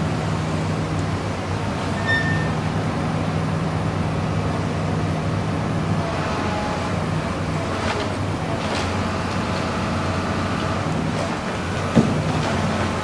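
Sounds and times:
excavator diesel engine running: 0.0 - 13.0
high squeal: 2.0 - 2.6.

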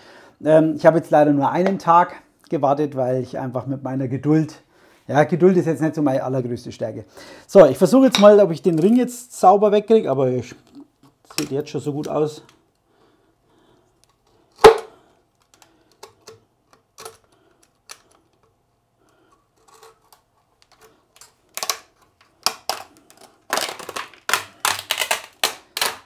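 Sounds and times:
plastic clicking and cracking: 14.0 - 26.0.

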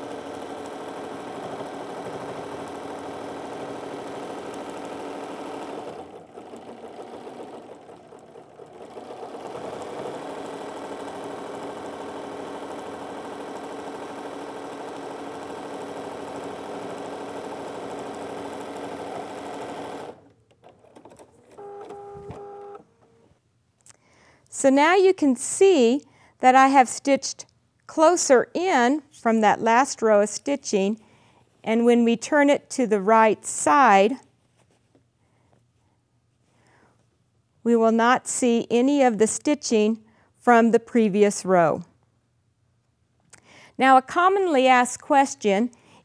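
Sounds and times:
sewing machine stitching: 0.0 - 22.8.

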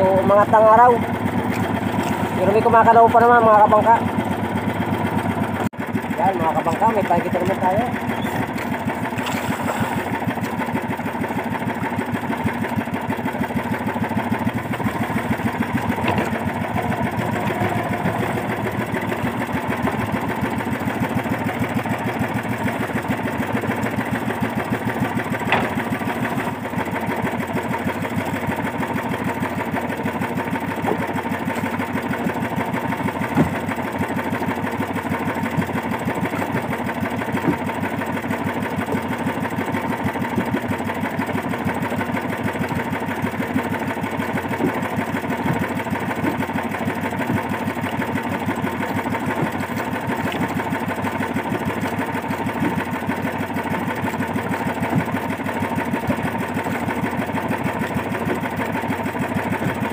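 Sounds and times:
boat engine puttering: 0.0 - 59.9.

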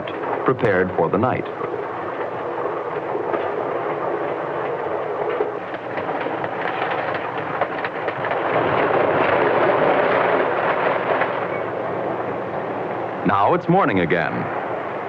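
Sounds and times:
train wheels clattering on rails: 0.0 - 15.0.

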